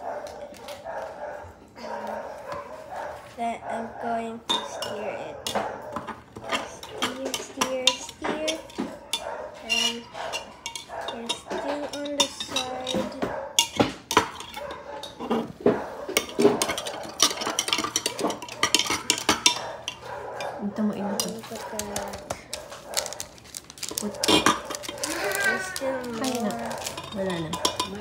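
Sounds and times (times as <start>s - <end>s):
spoon clinking in glass mug: 6.8s - 13.0s, 16.2s - 20.6s, 23.8s - 28.0s.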